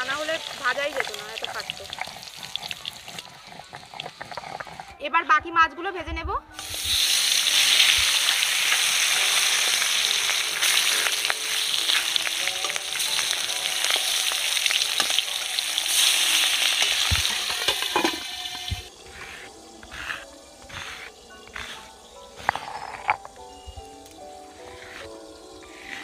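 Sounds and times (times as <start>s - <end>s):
fish frying in hot oil: 0.0s - 4.9s, 6.6s - 19.0s.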